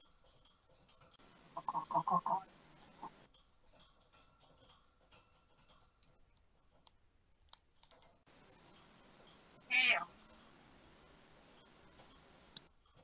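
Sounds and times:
faint clicks: 5.1 - 13.0
parrot squeaky call: 9.7 - 10.1.

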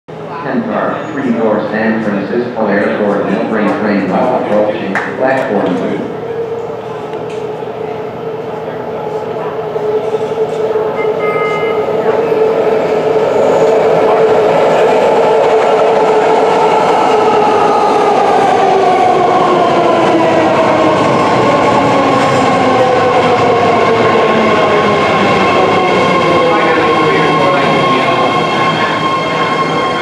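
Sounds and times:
electric train pulling in: 6.0 - 30.0
brief high tone: 10.9 - 12.4.

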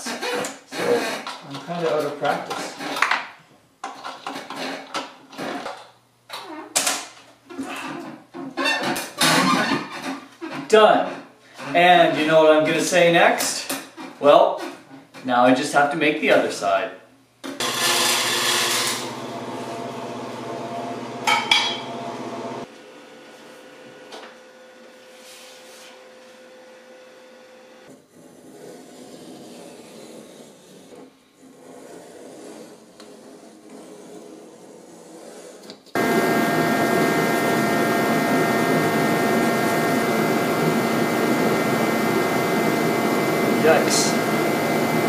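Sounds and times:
loud machine drone: 36.0 - 45.0.

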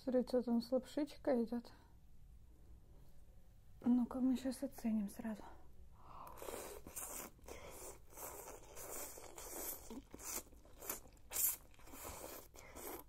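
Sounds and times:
chewing: 6.2 - 13.0
slurping noodles: 6.2 - 13.0.

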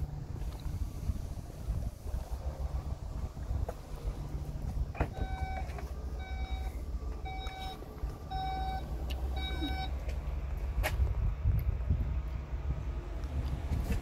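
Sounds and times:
warning beeps: 5.2 - 10.0.

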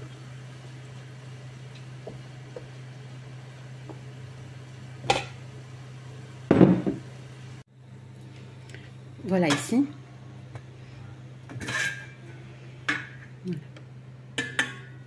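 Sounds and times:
steady low hum: 0.0 - 15.0
bowl knocking on counter: 6.5 - 7.0.

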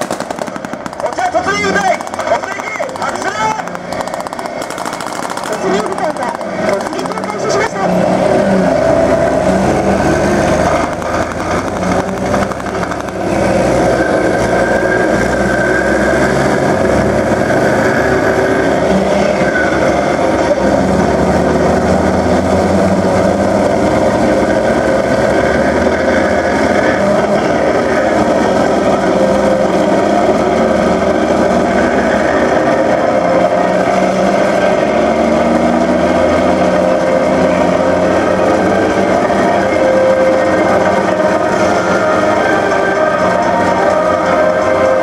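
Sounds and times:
tracked vehicles driving past: 0.0 - 45.0.

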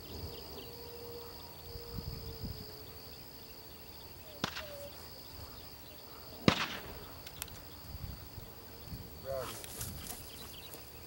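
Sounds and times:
insects buzzing: 0.0 - 11.0
sharp crack: 4.4 - 4.9, 6.4 - 7.6.

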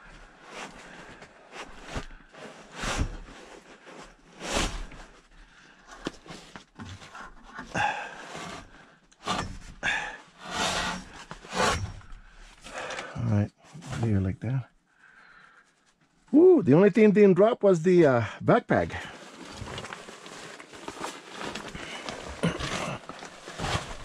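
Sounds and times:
fabric rustling: 19.0 - 24.0.

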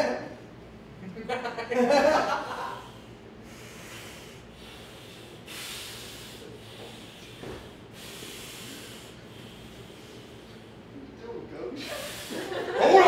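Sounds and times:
man breathing hard: 2.5 - 11.0, 11.8 - 12.8.

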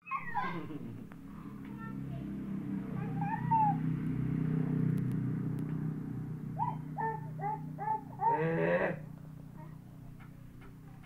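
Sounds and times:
animal calling: 3.0 - 3.9, 6.6 - 9.1.

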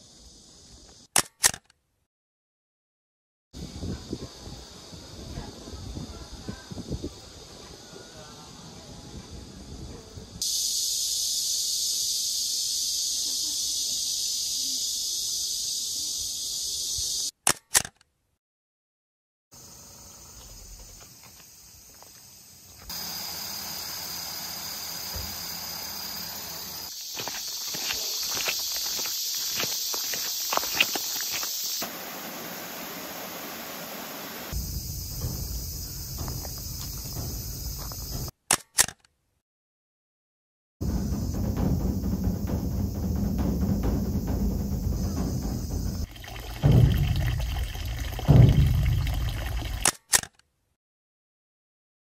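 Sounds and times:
sharp clicks: 1.1 - 1.8, 17.3 - 18.1, 38.5 - 39.1, 49.8 - 50.4
insect chorus buzzing: 3.6 - 17.3, 19.6 - 38.3, 40.8 - 49.8
steady hiss: 10.4 - 17.3, 19.6 - 38.3, 40.8 - 49.8
footsteps on gravel: 26.9 - 31.7, 35.2 - 38.3
low rumble: 40.8 - 49.8.

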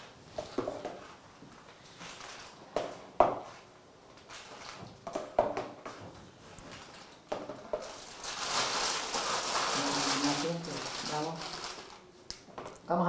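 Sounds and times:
piping bag rustling: 0.4 - 2.8, 4.2 - 5.0, 6.5 - 12.1.

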